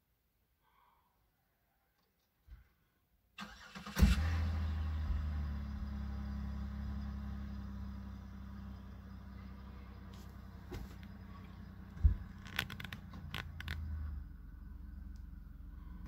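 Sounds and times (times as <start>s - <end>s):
car starter cranking: 3.4s - 5.4s
car engine idling: 3.4s - 16.0s.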